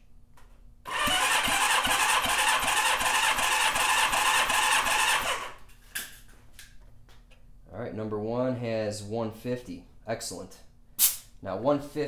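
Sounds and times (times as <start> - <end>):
engine cranking on starter: 0.9 - 5.6.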